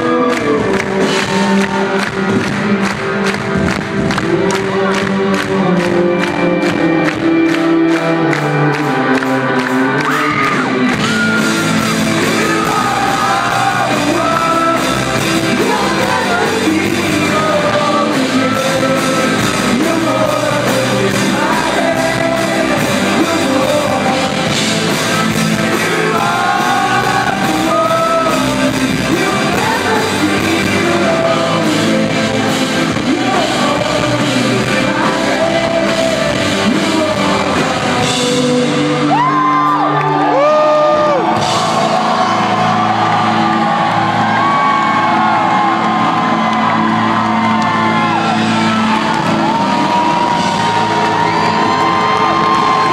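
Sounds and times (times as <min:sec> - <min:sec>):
electric guitar: 0:00.0 - 0:52.9
steady drum beat: 0:08.8 - 0:38.8, 0:41.0 - 0:52.9.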